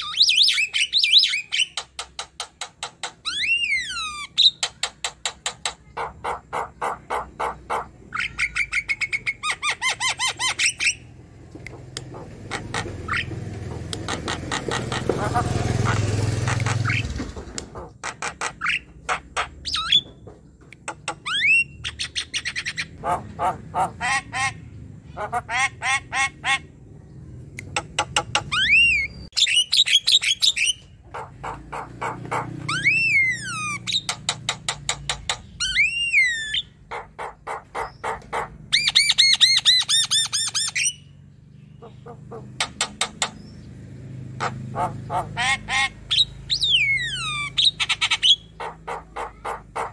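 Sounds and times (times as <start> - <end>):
myna bird singing: 0.0 - 49.9.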